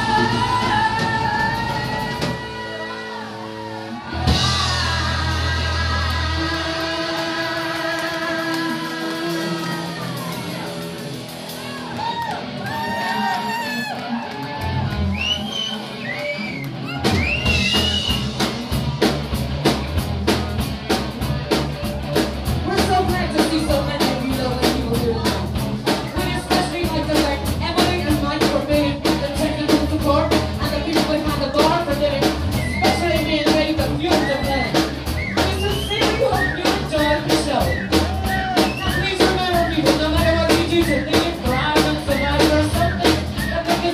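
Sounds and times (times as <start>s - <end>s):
drum kit beat: 0.0s - 3.0s, 4.1s - 43.9s
person singing: 0.0s - 11.2s, 22.7s - 43.9s
bass and guitar: 0.0s - 43.9s.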